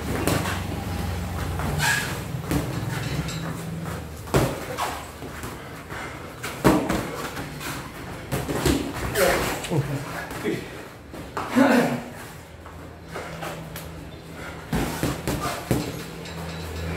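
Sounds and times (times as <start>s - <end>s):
boxing gloves punching thuds: 0.0s - 5.6s, 6.4s - 9.4s, 14.6s - 16.0s.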